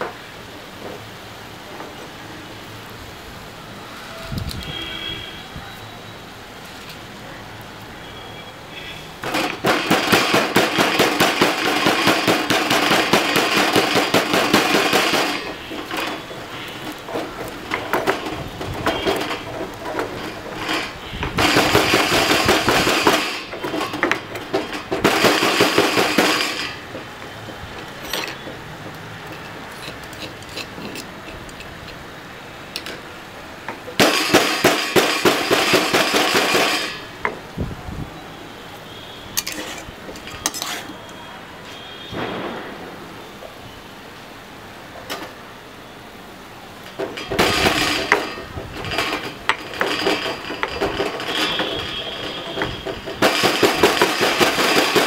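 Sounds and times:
stone pestle pounding in mortar: 9.2 - 16.3, 16.9 - 27.0.

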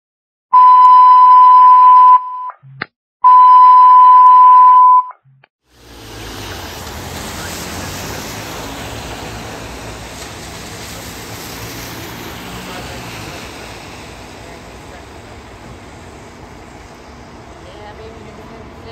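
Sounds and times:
long electronic beeps: 0.6 - 5.2
outdoor hiss of wet street: 5.6 - 18.9.

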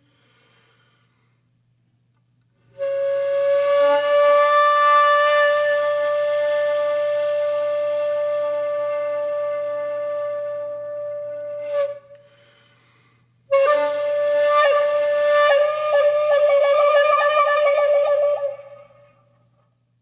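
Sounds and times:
flute-like wind instrument: 2.7 - 12.4, 13.5 - 19.3.

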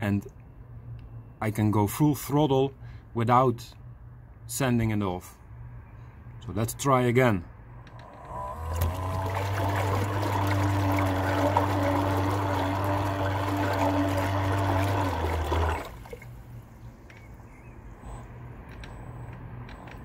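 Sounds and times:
electric motor hum: 7.9 - 16.2
water churning and bubbling: 8.0 - 16.7.

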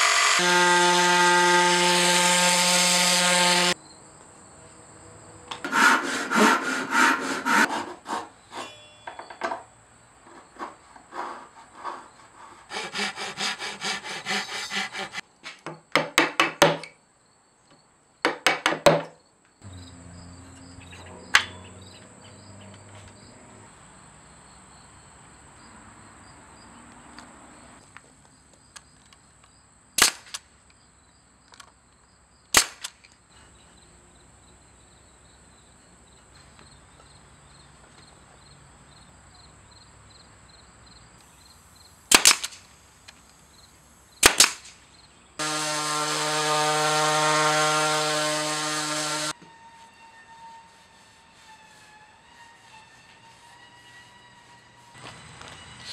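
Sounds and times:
hand tools scraping wood: 5.6 - 8.8, 10.3 - 15.6, 45.4 - 55.9
sharp wood snaps: 42.1 - 42.6, 44.2 - 44.8.

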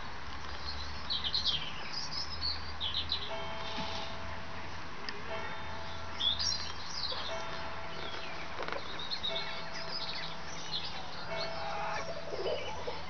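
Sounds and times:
songbirds chirping: 0.0 - 13.0
chickens clucking: 7.1 - 13.0.

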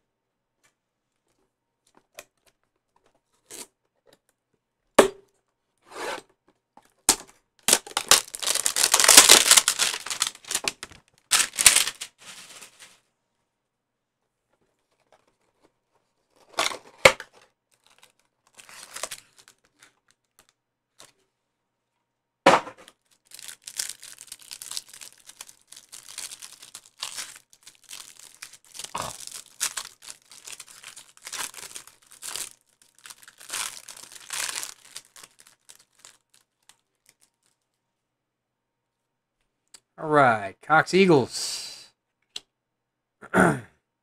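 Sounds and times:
foil wrapper tearing and crinkling: 7.6 - 13.0, 17.7 - 21.1, 22.9 - 37.7
cardboard box tearing: 7.7 - 10.7.

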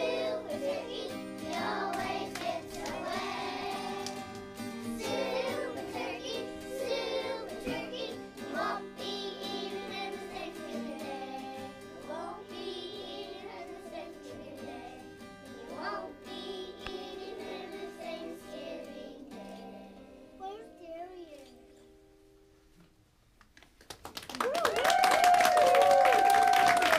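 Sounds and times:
children singing together: 0.0 - 20.2
instrumental accompaniment: 0.0 - 21.8.

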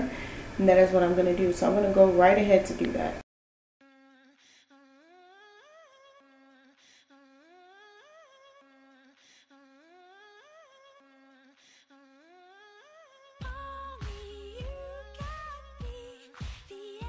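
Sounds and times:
loud pop music: 13.4 - 17.0.

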